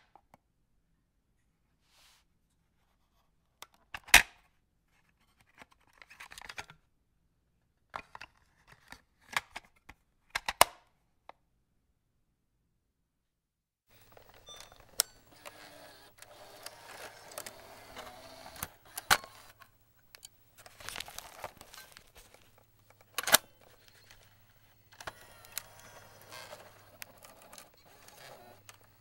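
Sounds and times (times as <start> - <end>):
cassette tape plastic clicks: 13.9 - 29.0.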